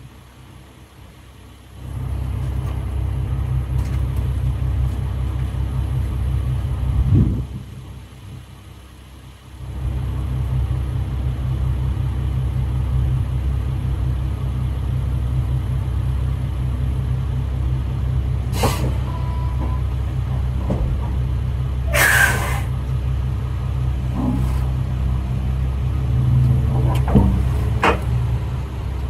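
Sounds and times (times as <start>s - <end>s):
diesel truck engine rumbling: 0.0s - 29.0s
air hissing: 18.5s - 19.1s, 21.9s - 22.8s.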